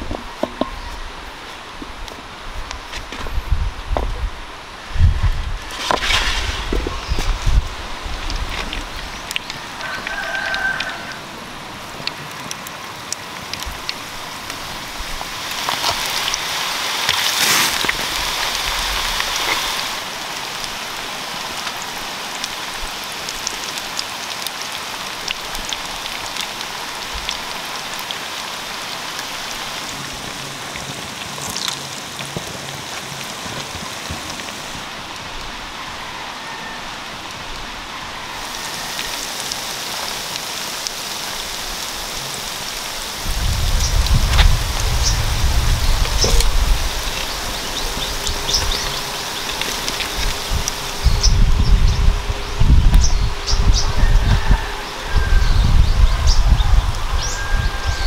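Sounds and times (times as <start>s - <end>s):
food sizzling in hot oil: 13.7s - 34.8s, 38.3s - 58.0s.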